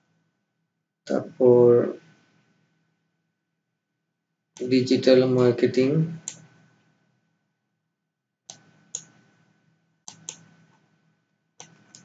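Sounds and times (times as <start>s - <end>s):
computer mouse clicks: 6.2s - 6.5s, 8.5s - 9.2s, 10.1s - 10.8s, 11.6s - 12.0s.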